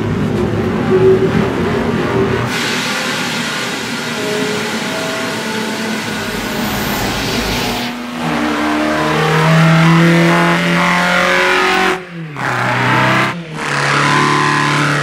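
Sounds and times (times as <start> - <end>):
race car engine: 5.0 - 15.0
loud rushing hiss: 5.6 - 8.5.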